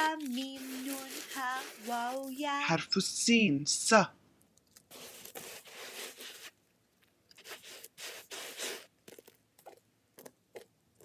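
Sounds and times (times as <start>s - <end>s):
hands sweeping sand: 0.0s - 2.7s, 4.9s - 6.6s, 7.4s - 8.9s.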